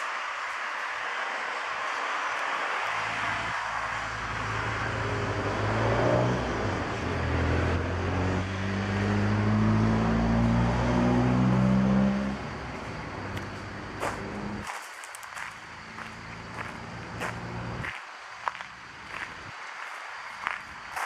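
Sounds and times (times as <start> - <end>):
car engine revving: 3.0 - 14.6.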